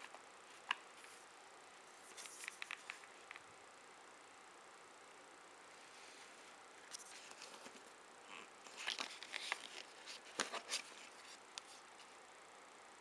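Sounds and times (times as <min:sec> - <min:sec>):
cardboard rustling and scraping: 0:08.6 - 0:11.8.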